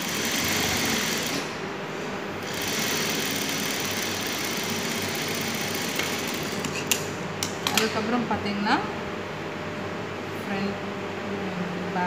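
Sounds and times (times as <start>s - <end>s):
sewing machine running: 0.0s - 1.5s, 2.4s - 6.8s.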